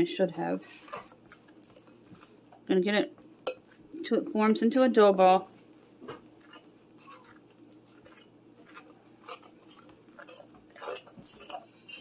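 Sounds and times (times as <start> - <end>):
fork scraping glass bowl: 0.4 - 2.6, 6.4 - 12.0.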